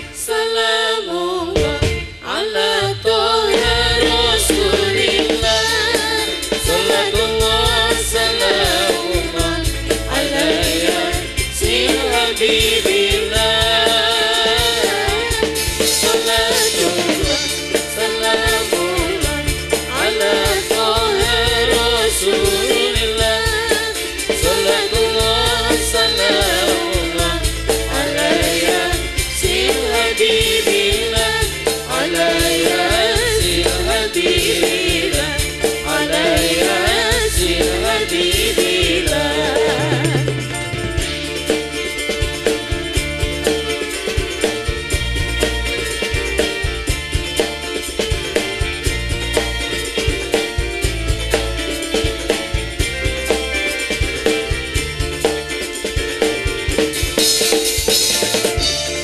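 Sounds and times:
women singing together: 0:00.0 - 0:40.4
drum kit steady beat: 0:01.5 - 0:59.0
frame drums: 0:01.5 - 0:59.0.

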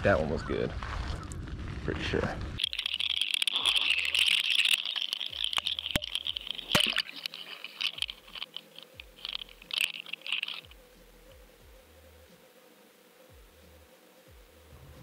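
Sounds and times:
rushing crackling underwater noise: 0:00.8 - 0:10.8.

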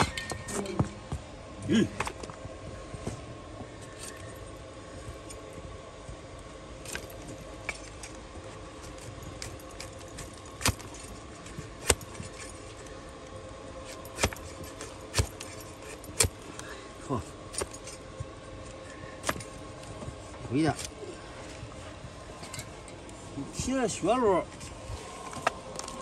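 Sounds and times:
hoof horn cracking under knife: 0:08.9 - 0:11.0, 0:11.8 - 0:12.4, 0:13.9 - 0:16.4.

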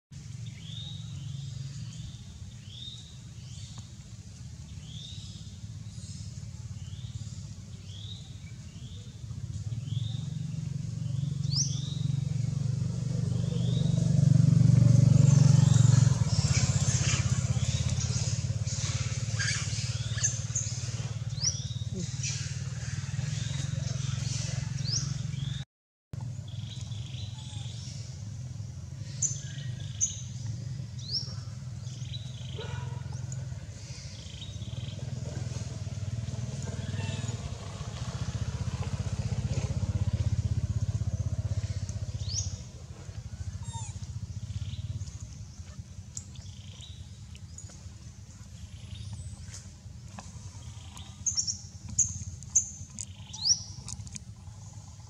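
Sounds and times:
small birds chirping: 0:14.7 - 0:25.6, 0:26.2 - 0:55.0.

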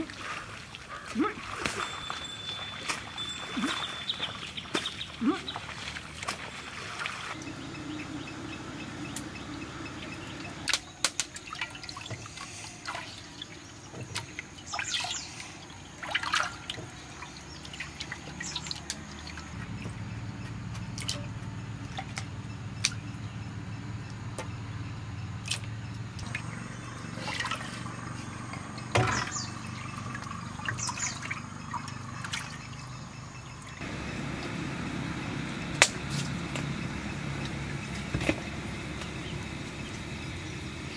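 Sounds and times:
water splashing in a bowl: 0:00.0 - 0:07.7, 0:10.6 - 0:20.0, 0:25.4 - 0:34.5
low background hum: 0:00.2 - 0:40.9.

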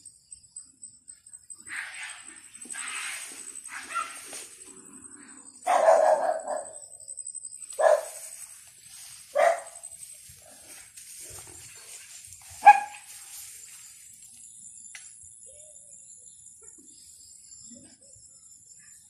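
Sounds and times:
dog barking: 0:03.7 - 0:04.2, 0:05.6 - 0:06.8, 0:07.8 - 0:08.2, 0:09.3 - 0:09.8, 0:12.6 - 0:13.1.

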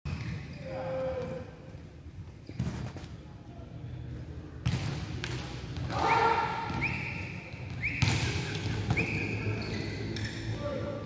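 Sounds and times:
shoe squeals: 0:06.0 - 0:10.8.

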